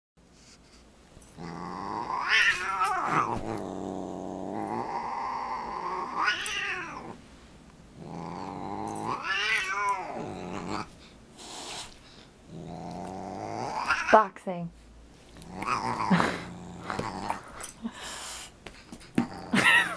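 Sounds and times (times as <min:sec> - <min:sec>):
cat growling and yowling: 0:01.4 - 0:07.2, 0:08.0 - 0:10.9, 0:12.6 - 0:14.2, 0:15.4 - 0:17.4.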